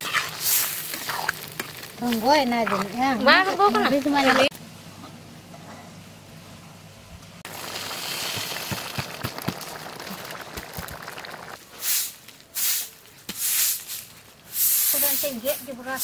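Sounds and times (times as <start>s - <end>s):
broom sweeping earth: 0.0s - 1.3s, 11.7s - 16.0s
crackling hiss: 0.0s - 3.1s, 7.4s - 15.7s.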